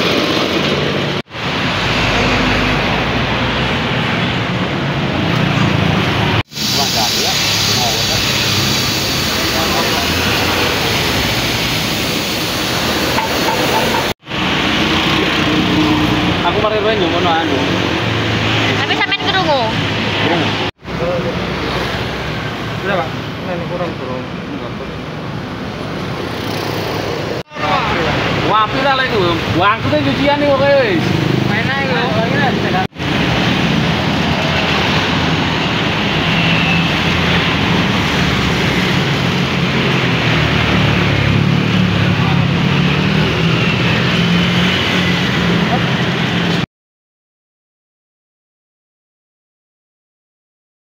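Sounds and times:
loud mechanical running noise: 5.1s - 18.8s
hiss of foam spraying: 6.5s - 13.8s.

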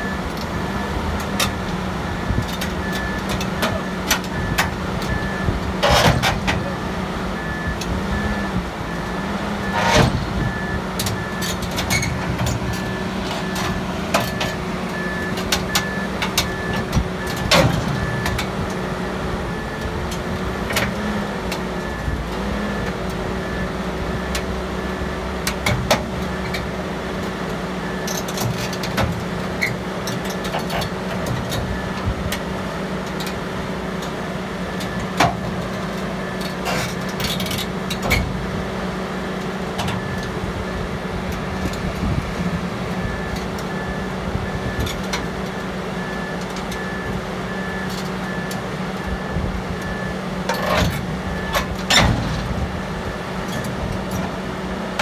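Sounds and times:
diesel engine running: 0.0s - 55.0s
steel tracks clanking on ramp: 5.8s - 6.7s, 9.6s - 10.4s, 50.5s - 54.4s.

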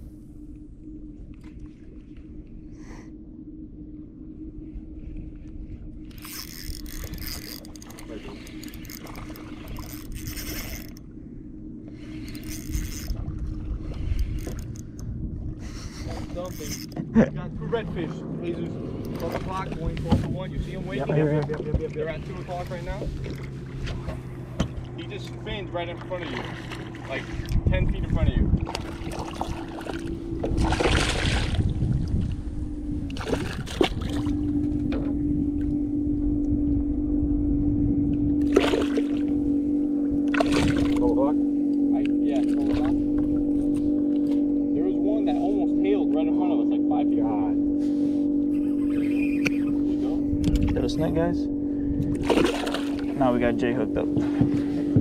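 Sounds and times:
low rumble: 0.0s - 55.0s
fishing reel gears whirring: 2.5s - 31.7s, 32.4s - 55.0s
fish splashing at water surface: 28.6s - 31.8s, 38.5s - 39.3s, 40.3s - 41.1s, 52.2s - 53.1s.

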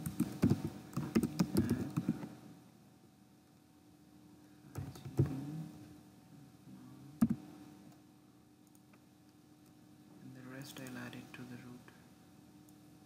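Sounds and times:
keyboard and mouse clicks: 0.0s - 2.3s.

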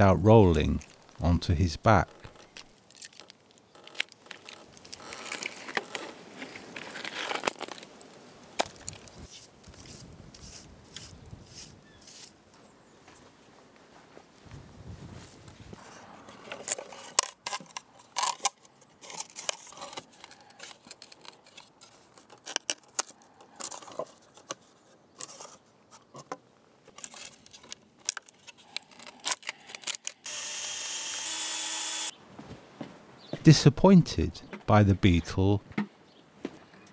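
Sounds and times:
cordless drill running: 30.2s - 32.1s.

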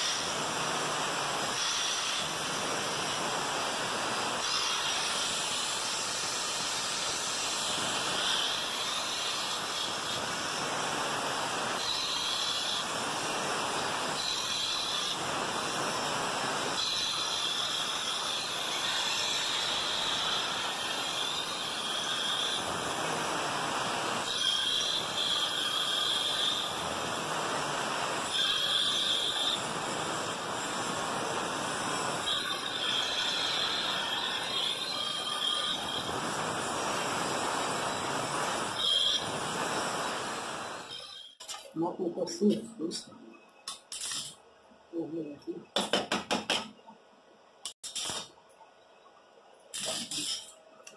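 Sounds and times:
angle grinder motor: 16.8s - 41.4s
grinder disc screeching on metal: 32.2s - 36.2s, 49.8s - 50.6s.

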